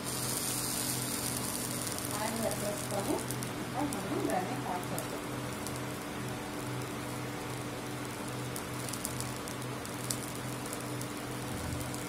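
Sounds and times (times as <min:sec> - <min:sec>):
oil heating hiss: 0:00.0 - 0:12.0.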